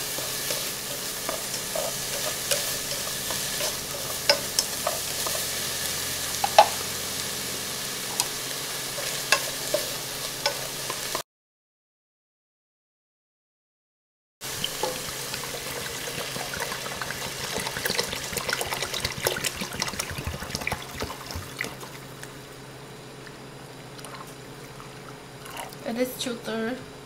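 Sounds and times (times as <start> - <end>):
water pouring into pot: 14.4 - 22.1.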